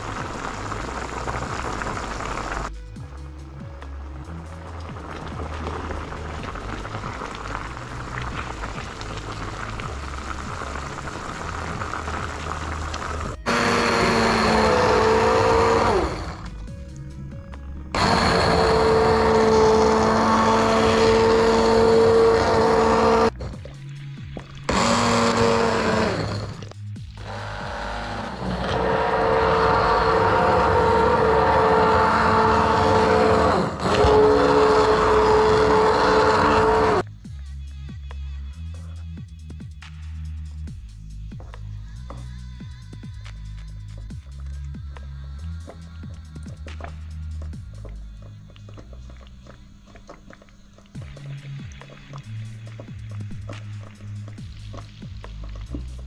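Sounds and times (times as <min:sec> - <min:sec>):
soup bubbling in a pan: 0:00.0 - 0:02.8, 0:04.8 - 0:16.5
immersion blender whirring: 0:10.6 - 0:16.5, 0:18.0 - 0:23.4, 0:24.7 - 0:37.0.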